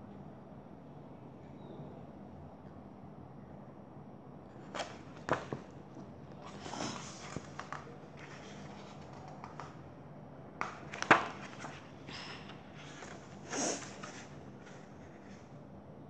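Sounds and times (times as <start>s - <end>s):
book pages flipping: 4.6s - 9.9s, 10.6s - 15.6s.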